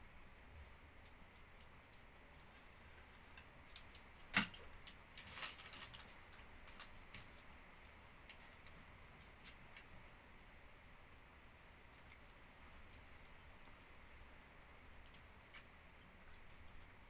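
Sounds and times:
chicken pulled apart on crackling foil: 3.7s - 7.3s.

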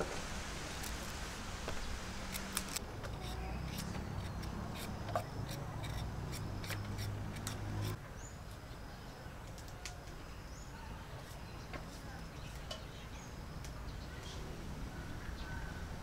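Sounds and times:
knife cutting vegetable stems: 2.3s - 8.0s.

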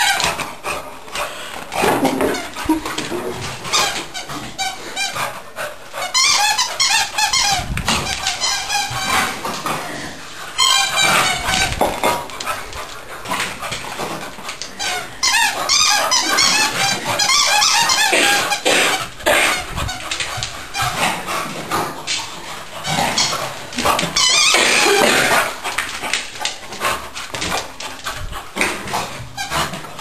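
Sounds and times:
puppy squeaking and yipping: 15.2s - 19.0s.

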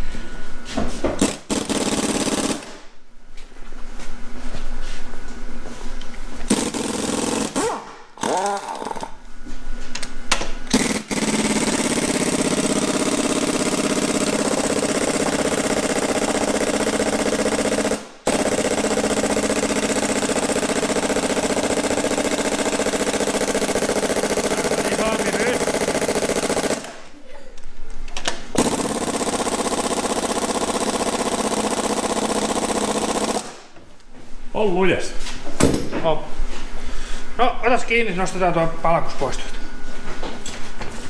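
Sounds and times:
pneumatic impact wrench hammering: 1.2s - 2.9s, 6.5s - 9.2s, 10.3s - 27.0s, 28.5s - 33.7s.

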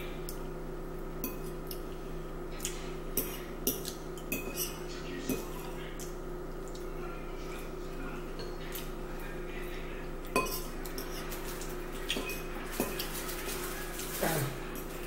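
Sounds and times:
forks clinking on bowls: 3.2s - 5.8s, 10.2s - 15.0s.

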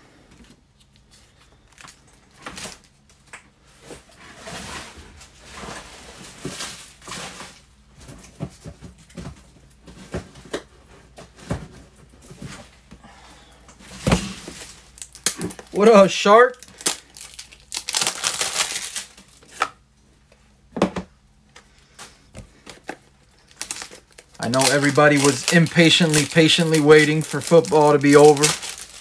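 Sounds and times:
cards and plastic sleeves rustling: 13.8s - 19.8s, 21.5s - 29.0s.

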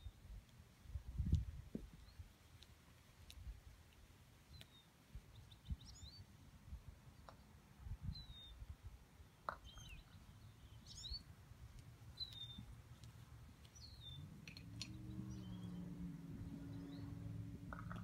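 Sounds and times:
faint songbird chirps: 1.8s - 2.7s, 3.8s - 18.0s
low steady hum: 8.9s - 18.0s.

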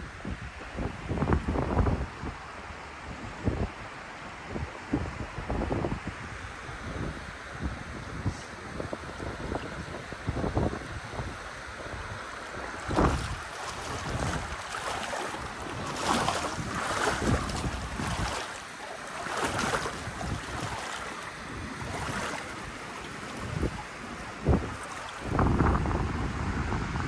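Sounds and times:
wind buffeting microphone: 0.0s - 27.0s
river water washing: 7.2s - 26.5s.

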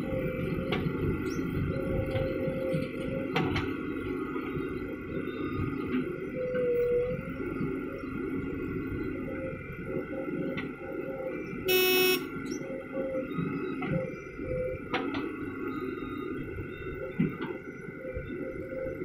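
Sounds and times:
diesel engines running: 0.0s - 19.0s
vehicle horn toot: 11.7s - 12.3s.

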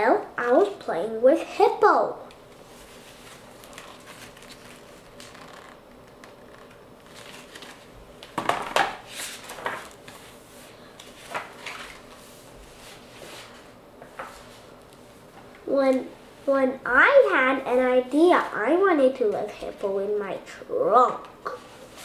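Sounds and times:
page being turned: 2.5s - 10.4s, 11.0s - 14.6s
paper pages rustling: 2.5s - 14.6s.

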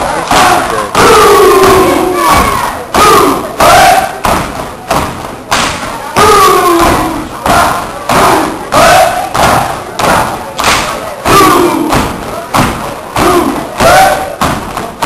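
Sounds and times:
group shouts: 0.2s - 4.3s, 6.2s - 10.4s, 11.2s - 12.0s, 13.2s - 14.4s
feet stomping on stage floor: 1.6s - 15.0s.

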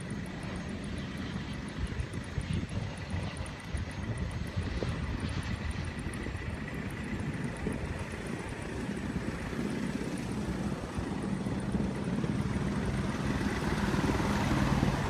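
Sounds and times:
van engine passing: 8.7s - 15.0s.

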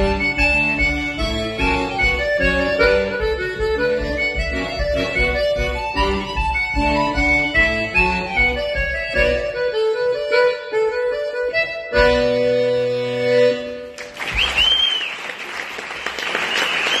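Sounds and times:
button accordion playing polka: 0.0s - 14.0s
audience applause: 13.9s - 17.0s
whistle from crowd: 14.2s - 15.4s, 16.3s - 17.0s.

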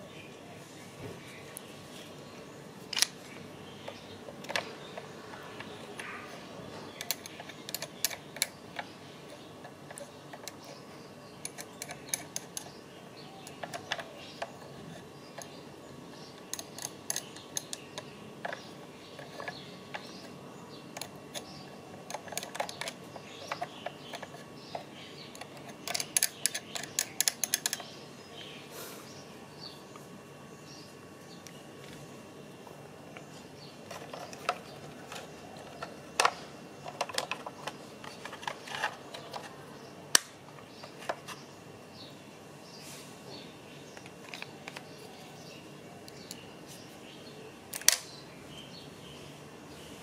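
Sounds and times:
plastic parts clicking: 2.9s - 3.2s, 3.8s - 10.8s, 11.4s - 12.8s, 13.4s - 15.6s, 16.4s - 28.0s, 33.1s - 41.4s, 44.0s - 45.0s, 47.7s - 48.2s.

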